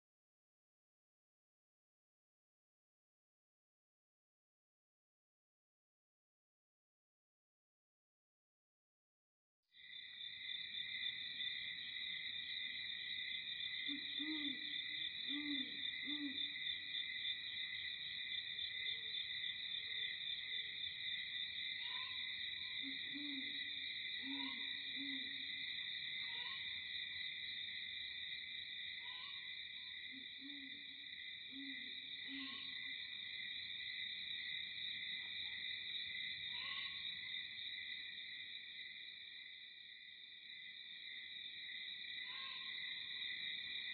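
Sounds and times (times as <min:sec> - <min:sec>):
high-pitched insect chorus: 0:09.8 - 0:43.9
bird hooting call: 0:13.9 - 0:16.6.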